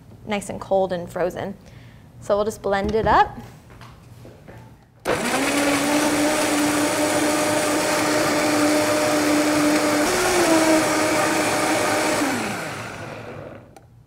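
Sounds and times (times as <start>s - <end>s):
blender motor whine: 5.1s - 13.7s.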